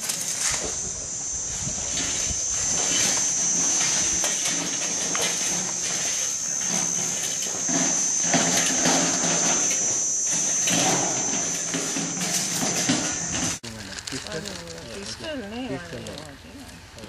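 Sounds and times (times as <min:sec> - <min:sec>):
high-pitched drone: 0:00.0 - 0:13.6.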